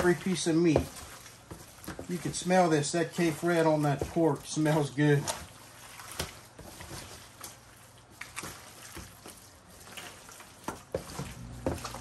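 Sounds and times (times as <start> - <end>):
wet meat squishing and sloshing: 0.0 - 12.0.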